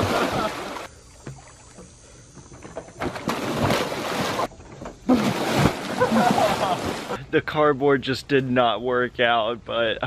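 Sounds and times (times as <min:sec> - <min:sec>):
pool water splashing: 0:00.0 - 0:02.0, 0:03.0 - 0:07.2
sudden loud splash: 0:05.1 - 0:07.2.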